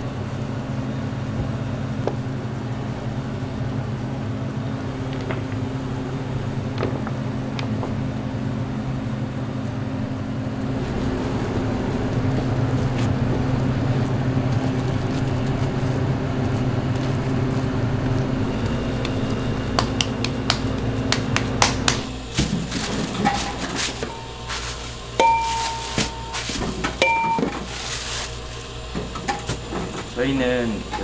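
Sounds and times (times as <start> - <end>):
kitchen machine motor humming: 0.0 - 31.0.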